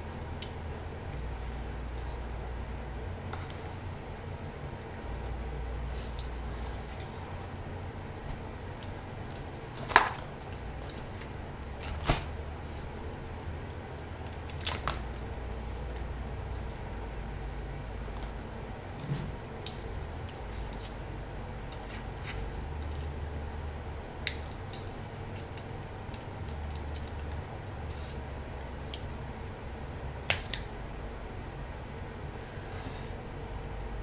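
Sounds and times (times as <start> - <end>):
low steady hum: 0.0 - 34.0
crab shells cracking by hand: 8.8 - 11.3, 13.7 - 15.2, 24.1 - 29.2, 30.2 - 30.7.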